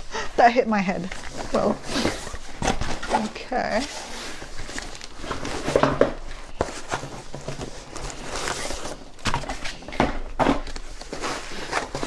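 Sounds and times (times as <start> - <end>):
bag rustling: 1.0 - 9.9
cardboard boxes knocking and scraping: 5.2 - 12.0.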